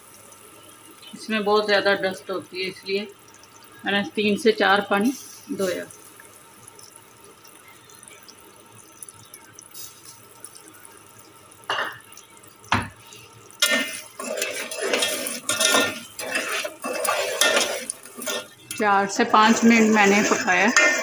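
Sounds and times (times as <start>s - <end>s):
syrup bubbling in a pot: 0.0s - 21.0s
metal spoon scraping a pot: 13.6s - 21.0s.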